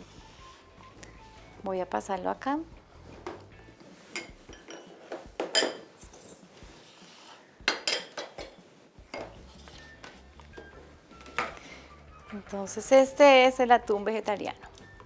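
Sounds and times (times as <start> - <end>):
glass bowls clinking: 4.1 - 6.3, 7.7 - 10.7.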